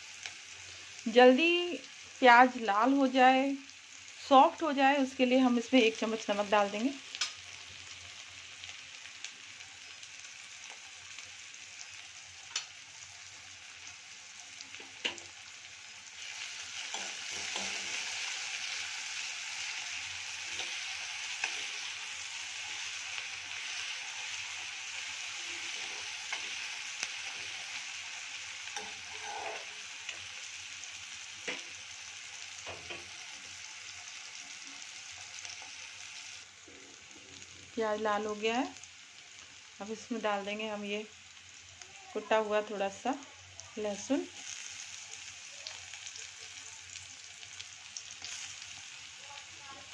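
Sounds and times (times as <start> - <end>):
onions sizzling in hot oil: 0.0 - 49.9
metal spatula scraping pan: 28.7 - 29.8.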